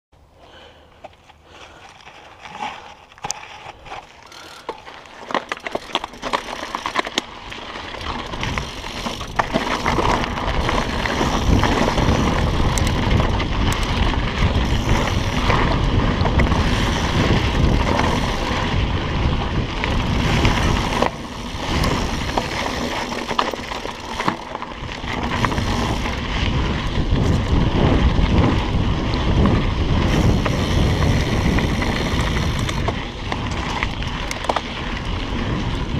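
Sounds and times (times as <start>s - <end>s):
bike tyres rolling on dirt: 0.4s - 35.9s
bike clattering over rocks: 2.5s - 18.8s, 19.9s - 28.0s
wind buffeting microphone: 8.0s - 23.4s, 24.0s - 35.9s.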